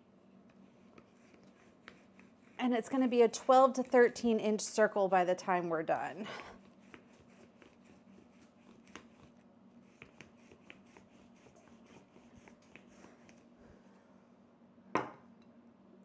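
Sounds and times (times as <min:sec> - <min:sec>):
rolling pin rubbing dough: 0:00.6 - 0:04.4, 0:06.6 - 0:13.5.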